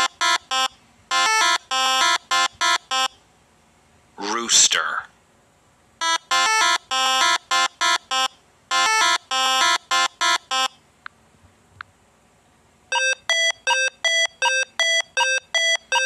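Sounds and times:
electronic beeping tune: 6.0 - 10.7, 12.9 - 16.0
even electronic beeps: 12.9 - 16.0.

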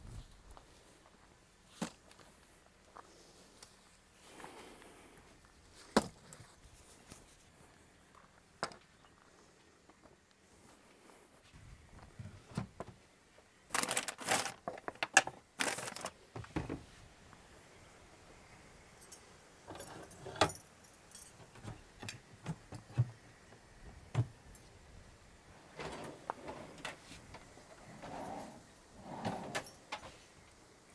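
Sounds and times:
small hard objects clinking: 13.7 - 16.2.

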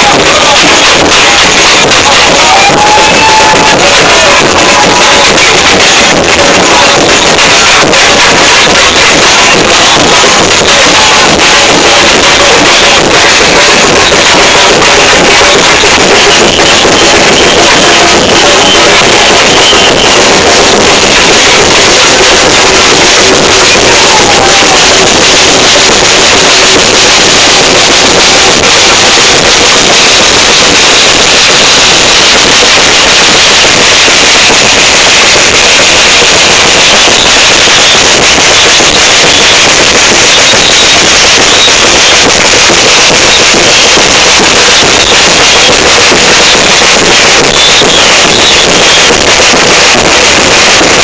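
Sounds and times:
samba drum section playing: 0.0 - 33.9.

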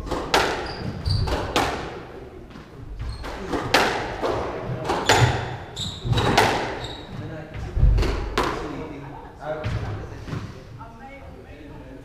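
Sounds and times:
shoes squeaking on wooden floor: 0.0 - 1.7, 2.4 - 8.3
squash ball hitting rackets and walls: 0.0 - 8.8.

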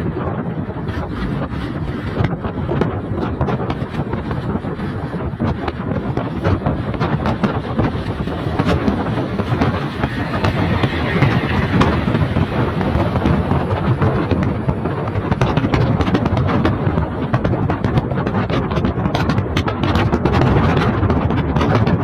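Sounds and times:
road and wind noise inside vehicle: 0.0 - 22.0
wind buffeting microphone: 0.0 - 22.0
truck passing: 8.9 - 14.4.

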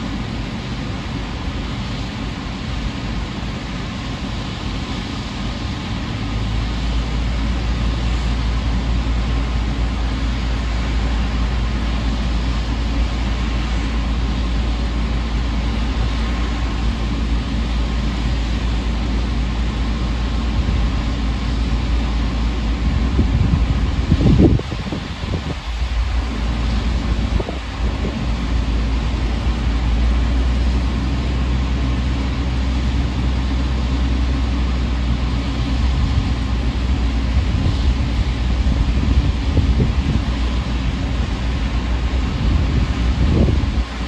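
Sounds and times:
churning water: 0.0 - 44.0
ship engine deep rumble: 0.0 - 44.0
wind rushing: 22.7 - 29.5, 35.8 - 44.0.

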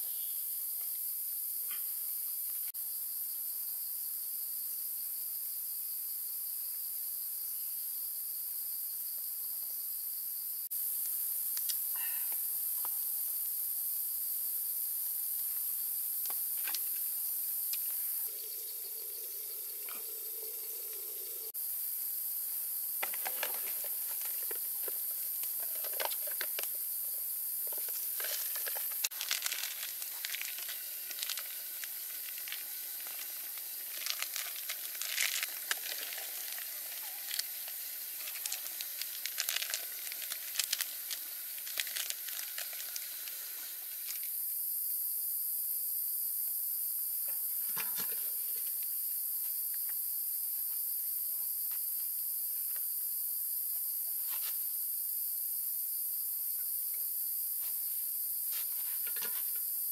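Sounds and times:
high-pitched insect drone: 10.7 - 45.2
plastic packaging crinkling and tearing: 28.2 - 37.5, 38.2 - 43.1.

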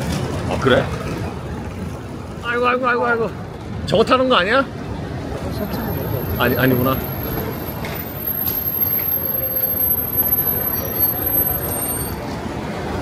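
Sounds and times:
road traffic: 0.0 - 13.0
bus engine running: 4.8 - 13.0.

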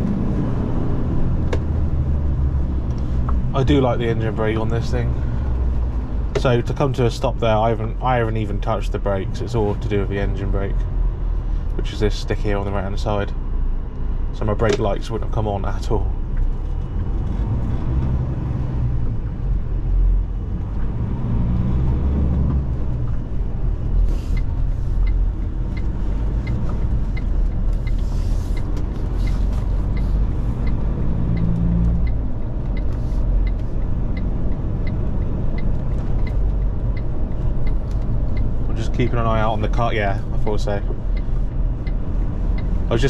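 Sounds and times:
truck engine and road noise: 0.0 - 43.0
turn indicator ticking: 2.8 - 6.8, 22.3 - 43.0.

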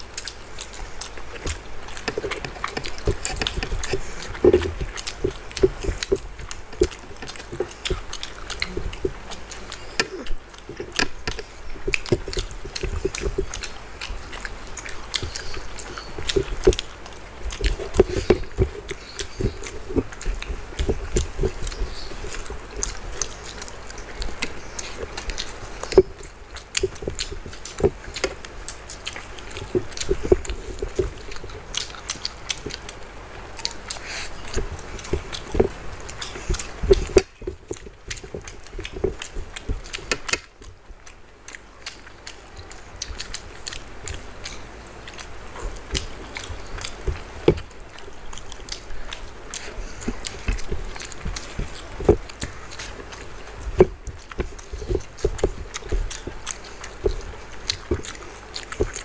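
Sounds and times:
fingers squelching rice and curry: 0.0 - 59.0
people chewing with lip smacks: 0.0 - 59.0.

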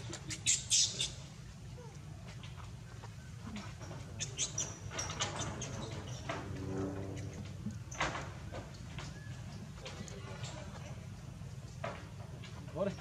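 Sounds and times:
monkeys squeaking: 0.0 - 1.2, 4.2 - 6.3
low background hum: 0.0 - 13.0.

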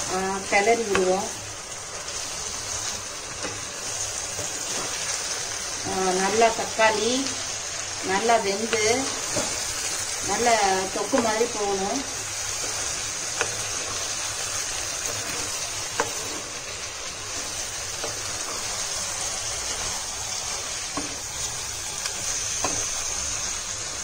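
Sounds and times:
vegetables sizzling in oil: 0.0 - 24.0.

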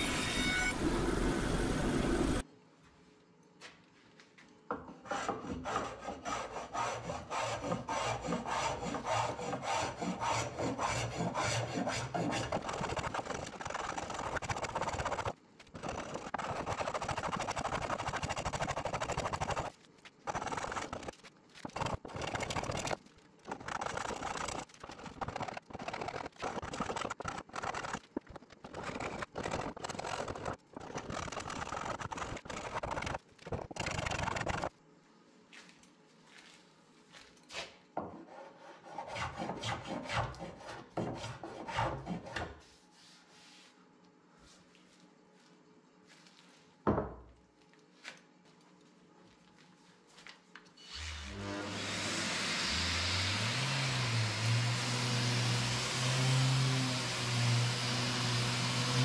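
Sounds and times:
hand tool rasping wood: 5.0 - 19.7.

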